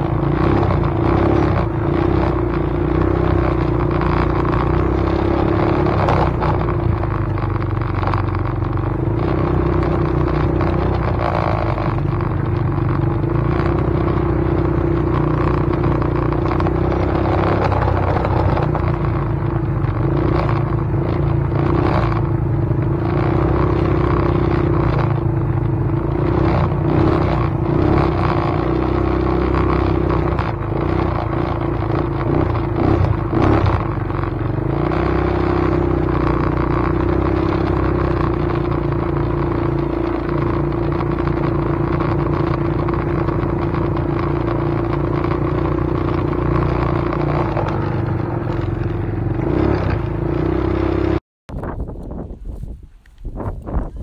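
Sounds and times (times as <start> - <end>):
vehicle running rumble: 0.0 - 54.0.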